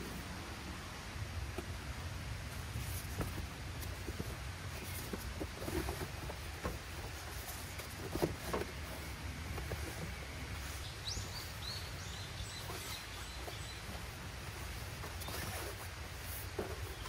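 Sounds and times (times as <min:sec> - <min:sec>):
foam pads rustling: 0:02.4 - 0:17.0
bird chirping: 0:08.9 - 0:14.0.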